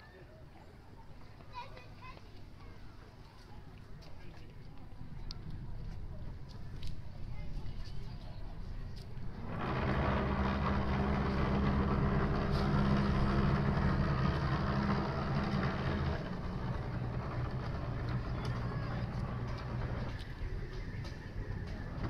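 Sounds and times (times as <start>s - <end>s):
boat diesel engines humming: 5.0s - 22.0s.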